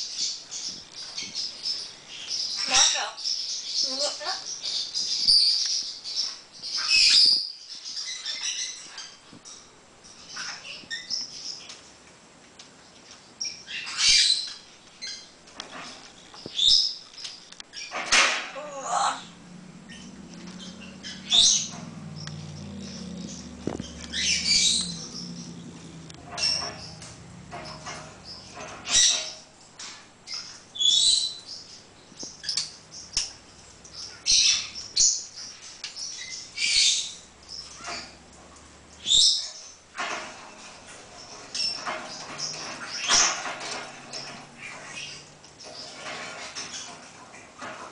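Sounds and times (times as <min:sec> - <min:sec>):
parrot squawking: 0:22.8 - 0:25.4.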